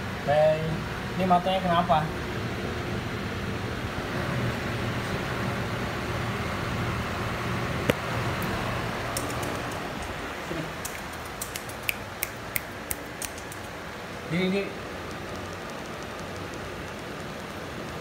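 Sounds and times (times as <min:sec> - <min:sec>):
floor fan whirring: 0:00.0 - 0:18.0
sharp clicks: 0:09.2 - 0:10.1, 0:10.8 - 0:13.8, 0:15.0 - 0:18.0.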